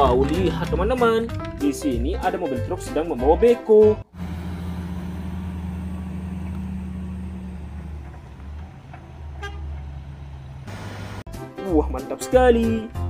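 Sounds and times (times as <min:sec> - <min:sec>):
diesel truck engine running: 0:04.0 - 0:11.3.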